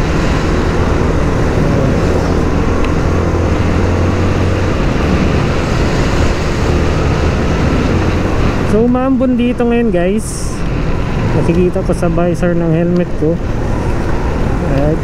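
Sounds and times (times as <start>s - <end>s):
motorcycle engine running: 0.0s - 9.2s
wind rushing over microphone: 0.0s - 15.0s.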